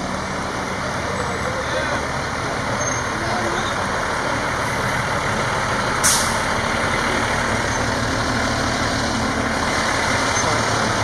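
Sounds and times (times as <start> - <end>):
truck engine rumble: 0.0 - 11.0
air brakes hiss: 6.0 - 6.4.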